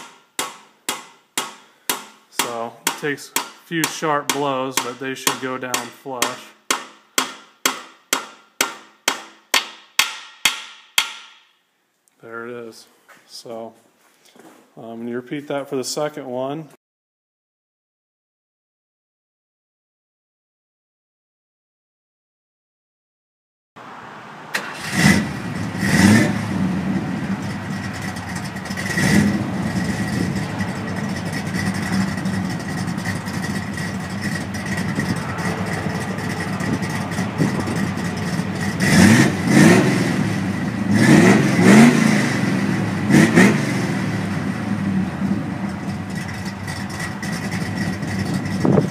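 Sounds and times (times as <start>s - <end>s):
car engine idling and revving: 23.8s - 48.9s.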